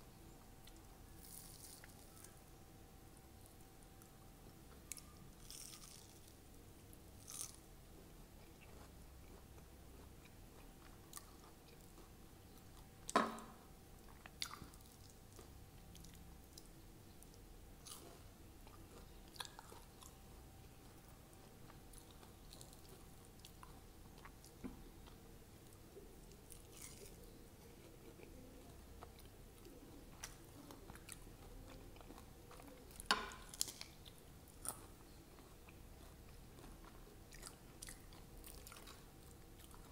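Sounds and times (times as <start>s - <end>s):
quiet chewing: 0.3s - 2.6s, 3.4s - 39.9s
crunchy bites: 5.0s - 6.3s, 7.2s - 7.6s.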